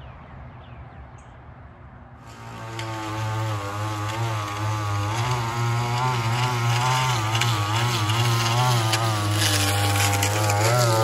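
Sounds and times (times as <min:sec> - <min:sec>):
string trimmer engine running: 0:02.2 - 0:11.0.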